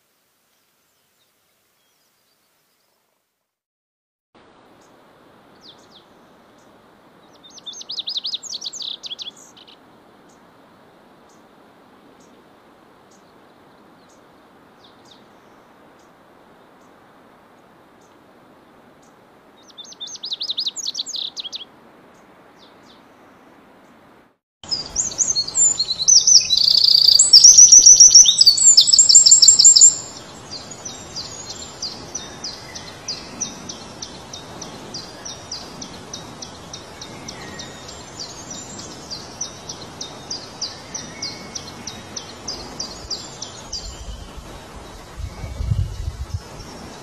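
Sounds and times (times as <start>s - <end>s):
wren trilling song: 7.3s - 9.8s, 19.6s - 21.6s, 24.6s - 47.0s.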